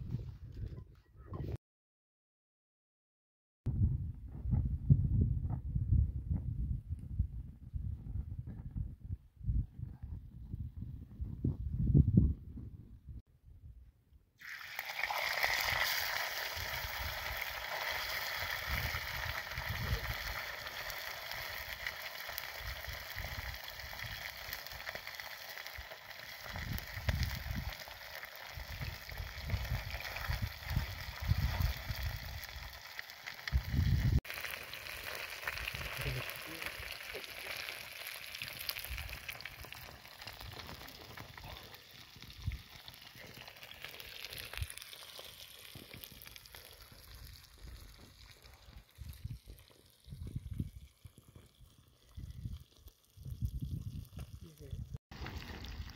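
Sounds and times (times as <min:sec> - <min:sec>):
fish frying in oil: 0:14.4 - 0:55.9.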